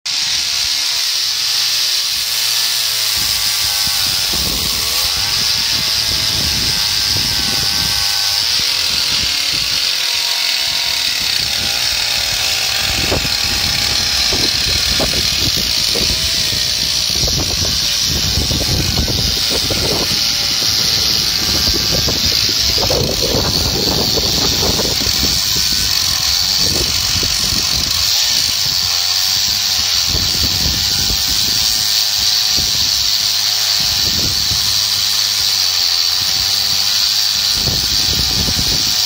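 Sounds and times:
chainsaw cutting log: 0:00.1 - 0:39.0.

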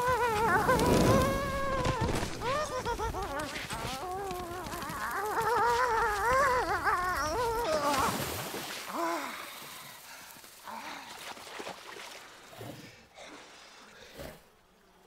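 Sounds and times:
short falling animal call: 0:00.0 - 0:07.6.

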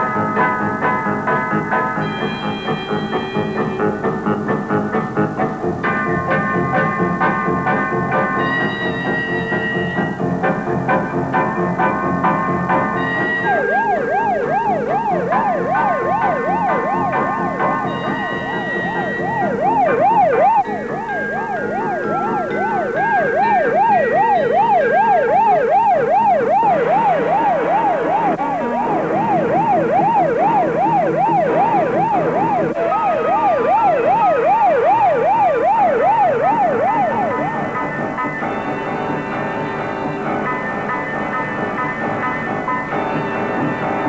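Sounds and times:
police siren yelping: 0:06.3 - 0:44.0.

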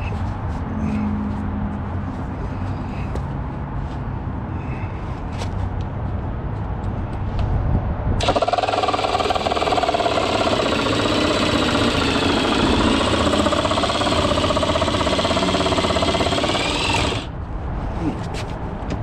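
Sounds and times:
power saw cutting plastic: 0:08.2 - 0:17.3.

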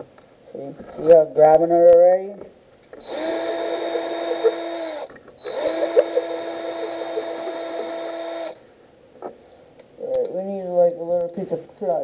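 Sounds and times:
power drill whining: 0:03.0 - 0:08.6.

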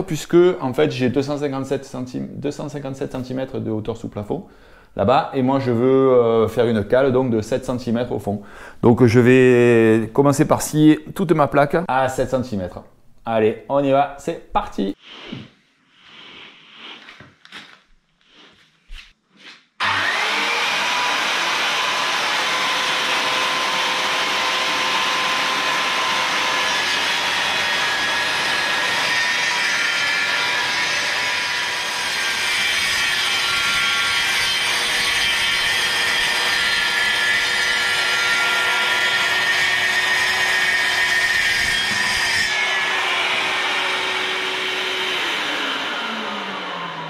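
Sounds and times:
circular saw cutting board: 0:15.0 - 0:47.0
site vacuum running: 0:42.8 - 0:47.0.

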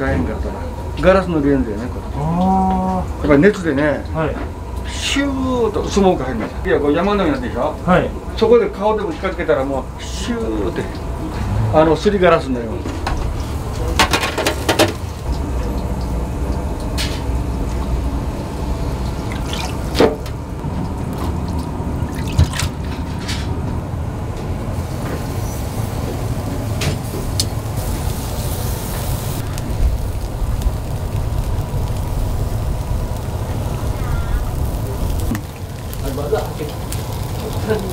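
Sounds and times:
low kitchen rumble: 0:00.0 - 0:37.9
liquid dripping: 0:18.8 - 0:23.0.

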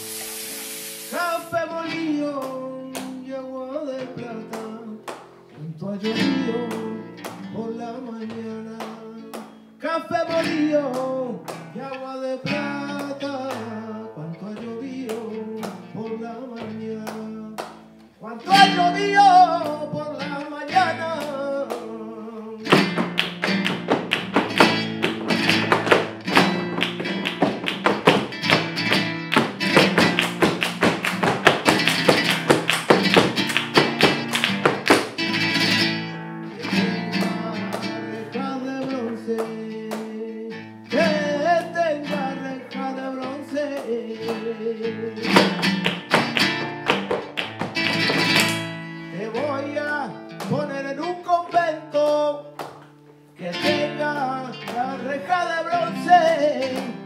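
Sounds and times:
flamenco guitar: 0:00.0 - 0:57.0
flamenco singing: 0:01.0 - 0:57.0
rhythmic hand-clapping: 0:02.3 - 0:03.3, 0:04.5 - 0:05.4, 0:08.2 - 0:09.6, 0:10.8 - 0:11.8, 0:16.6 - 0:18.0, 0:22.7 - 0:35.8, 0:36.6 - 0:38.2, 0:38.8 - 0:40.2, 0:43.7 - 0:44.6, 0:45.2 - 0:48.9, 0:51.9 - 0:53.0, 0:54.1 - 0:57.0
dance footwork on wooden boards: 0:22.7 - 0:35.4, 0:45.3 - 0:48.8.

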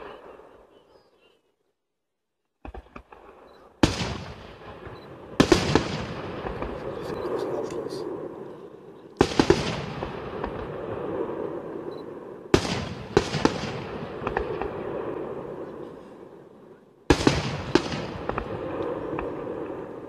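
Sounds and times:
smaller firework bangs: 0:02.6 - 0:08.4, 0:09.2 - 0:16.0, 0:17.1 - 0:20.0.

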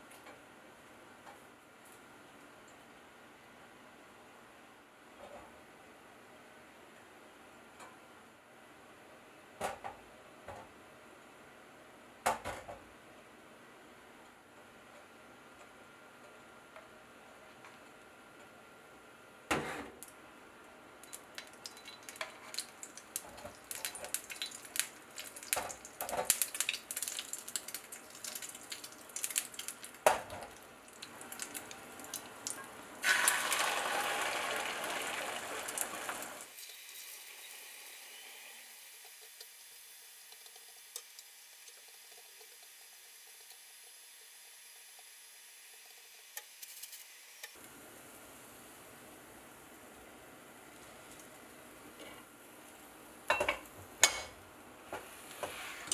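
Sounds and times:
egg sizzling in hot pan: 0:21.0 - 0:49.1.

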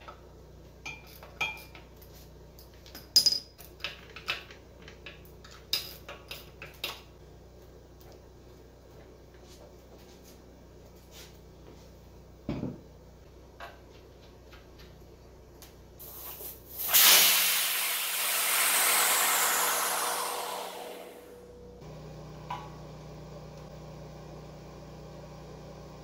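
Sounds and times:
loud hiss: 0:16.0 - 0:21.4.

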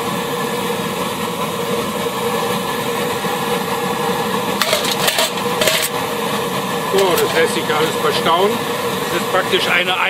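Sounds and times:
pressure burner roaring: 0:00.0 - 0:10.0
metal cooking pots clattering: 0:04.6 - 0:06.0, 0:06.9 - 0:08.0.

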